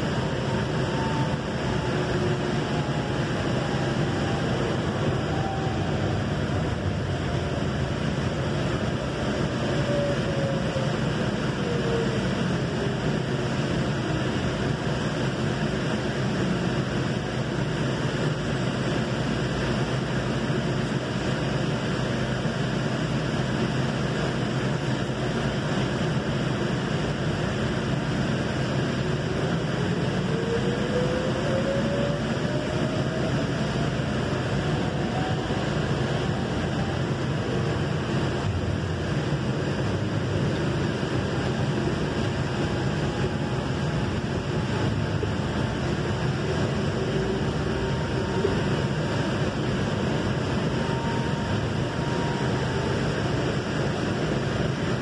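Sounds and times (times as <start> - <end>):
train rumble and hum: 0.0 - 55.0
train whine: 0.0 - 55.0.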